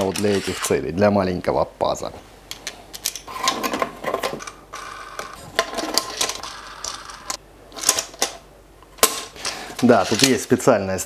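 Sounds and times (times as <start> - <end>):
bolts and plastic clicking and rattling: 9.0 - 10.4.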